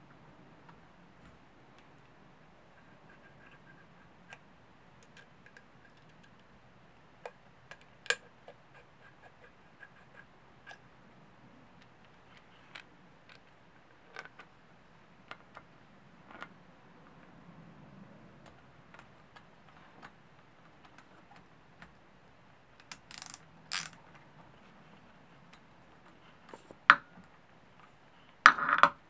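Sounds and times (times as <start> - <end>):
small metal clicks: 22.8 - 24.0.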